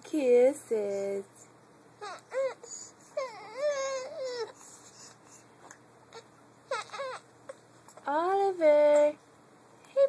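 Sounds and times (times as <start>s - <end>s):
baby crying: 2.0s - 4.6s, 6.1s - 7.3s.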